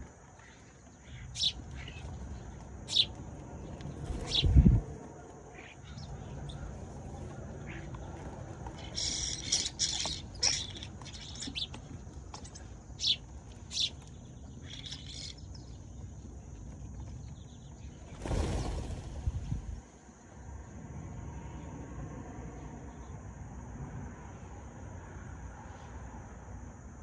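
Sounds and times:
sparrows chirping: 0:00.0 - 0:04.8, 0:05.5 - 0:19.0
low background rumble: 0:00.0 - 0:23.3.

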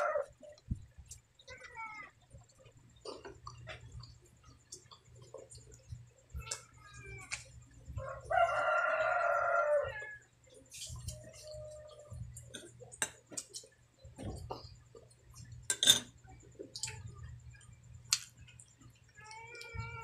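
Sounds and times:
rooster crowing: 0:00.0 - 0:00.3, 0:08.0 - 0:10.3
person eating with hands: 0:00.0 - 0:09.2, 0:10.4 - 0:20.0.

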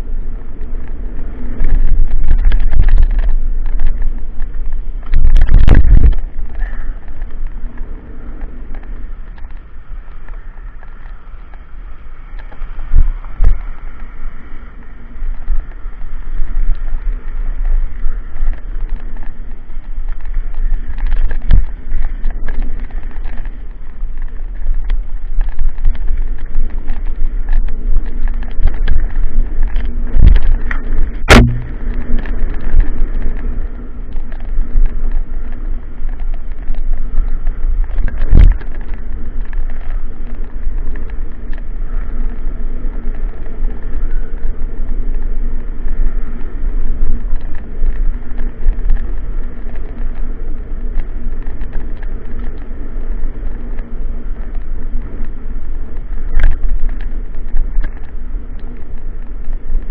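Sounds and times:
wind buffeting microphone: 0:00.0 - 0:59.9
sharp knocks: 0:31.3 - 0:31.8.

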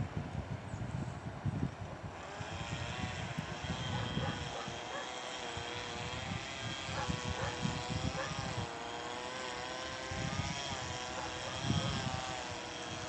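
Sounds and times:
wind on microphone: 0:00.0 - 0:08.7, 0:09.5 - 0:13.0
electric locomotive drone: 0:02.2 - 0:13.0.

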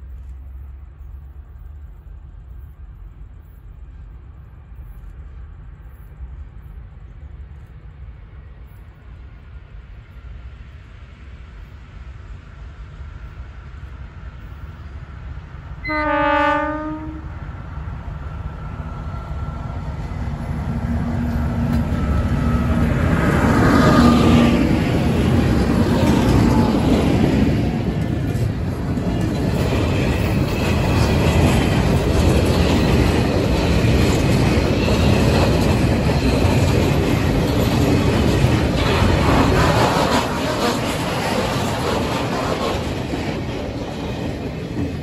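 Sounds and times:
wagons rumbling over rails: 0:12.3 - 0:45.0
locomotive engine passing: 0:15.4 - 0:45.0.

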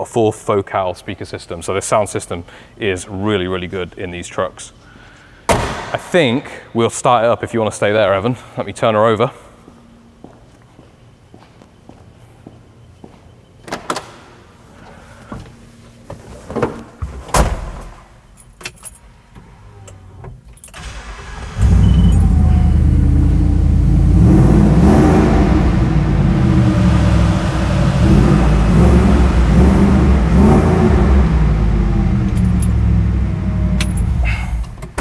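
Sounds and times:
car engine starting and revving: 0:20.8 - 0:35.0.

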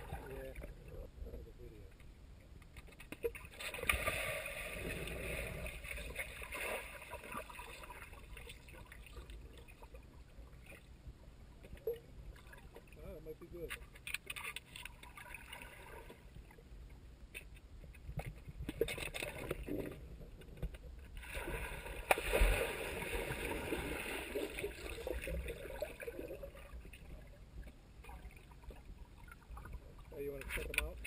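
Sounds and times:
water churning and bubbling: 0:00.0 - 0:01.3, 0:03.2 - 0:17.0, 0:18.0 - 0:31.0
underwater sloshing and gurgling: 0:00.0 - 0:31.0
sharp splash: 0:21.2 - 0:25.8.

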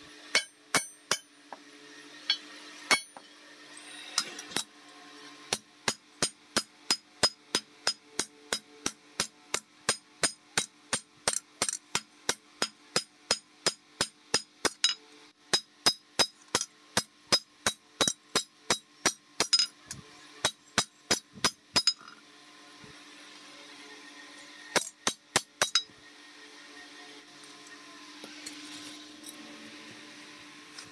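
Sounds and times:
hammer striking steel blade: 0:00.3 - 0:01.3, 0:02.2 - 0:03.3, 0:05.5 - 0:19.7, 0:24.7 - 0:25.9.

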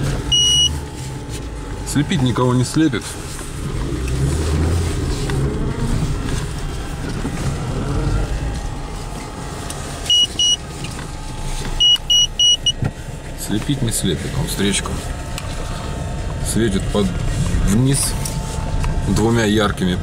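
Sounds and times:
car engine and tyres rumbling: 0:00.0 - 0:20.0
short high electronic beeps: 0:00.3 - 0:00.8.

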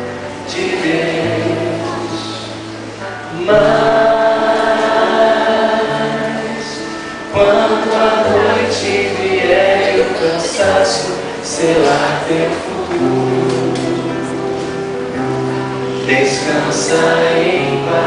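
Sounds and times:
choir-like sustained chords: 0:00.0 - 0:18.0.

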